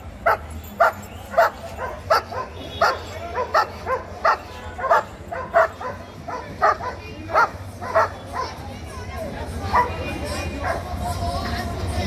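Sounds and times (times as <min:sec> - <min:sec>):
dog barking: 0:00.2 - 0:08.6, 0:09.7 - 0:10.9.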